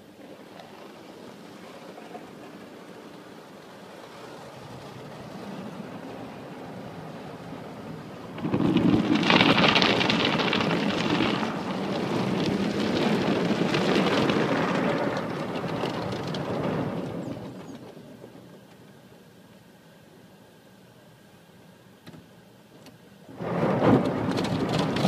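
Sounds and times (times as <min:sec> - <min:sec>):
water jets spraying on car: 0:00.0 - 0:19.0.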